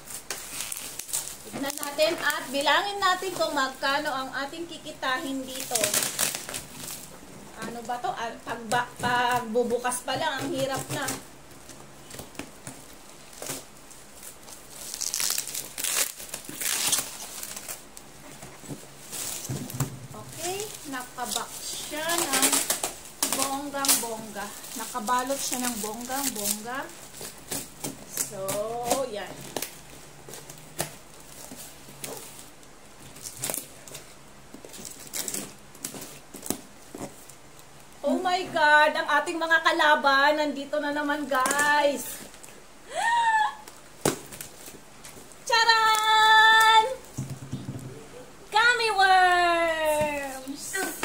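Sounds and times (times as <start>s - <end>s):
packing tape ripping: 0.0s - 3.5s, 5.4s - 7.2s, 10.4s - 37.7s
cardboard rustling: 0.0s - 4.1s, 5.2s - 37.4s
bubble wrap crinkling: 0.0s - 51.0s.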